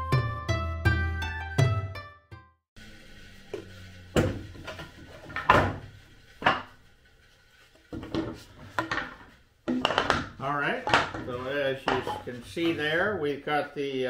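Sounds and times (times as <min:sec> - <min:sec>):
wooden boards clattering: 0:04.2 - 0:06.8, 0:07.9 - 0:12.9
wooden boards knocking on metal: 0:08.0 - 0:12.3.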